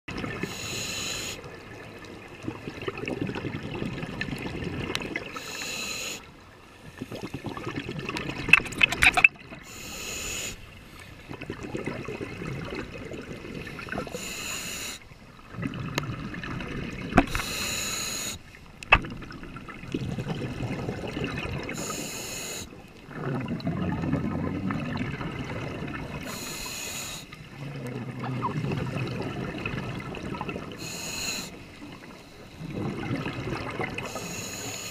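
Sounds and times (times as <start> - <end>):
scuba regulator inhale hiss: 0.4 - 1.5, 5.3 - 6.3, 9.6 - 11.2, 14.0 - 15.1, 17.3 - 18.5, 21.7 - 22.8, 26.2 - 27.4, 30.8 - 32.6, 34.0 - 34.9
bubbling exhalation: 7.0 - 9.8, 11.3 - 14.3, 15.5 - 17.6, 19.0 - 22.0, 23.0 - 26.6, 27.6 - 30.9, 32.6 - 34.2.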